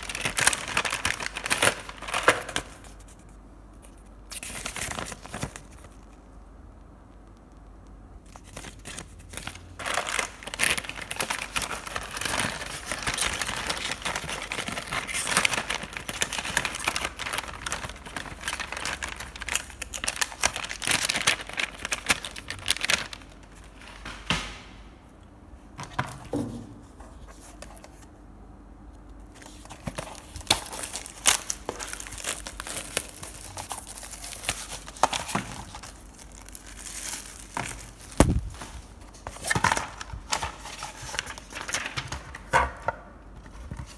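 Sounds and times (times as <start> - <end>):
paper and plastic crinkling: 0.0 - 6.4, 8.2 - 24.3, 29.3 - 43.9.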